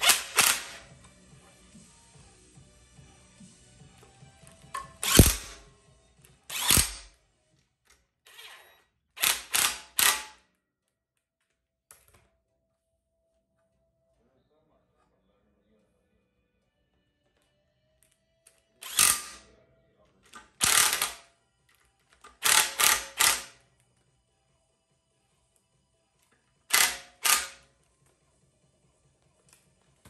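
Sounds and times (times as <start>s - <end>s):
cordless power driver spinning: 0.0s - 1.6s, 5.0s - 5.6s, 6.5s - 7.1s, 18.8s - 19.4s, 20.4s - 21.1s, 26.7s - 27.6s.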